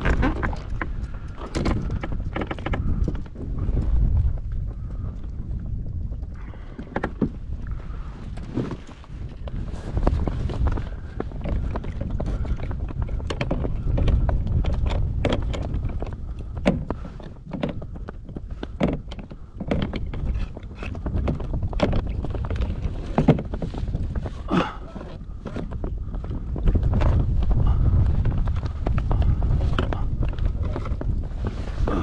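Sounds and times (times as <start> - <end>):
knocks and clicks of gear: 0.0 - 3.4, 9.4 - 24.2
wind buffeting microphone: 0.0 - 32.0.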